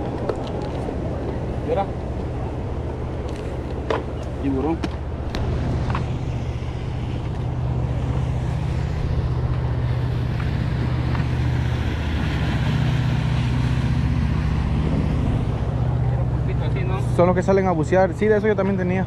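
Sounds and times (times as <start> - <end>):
motorboat engine droning: 0.0 - 19.0.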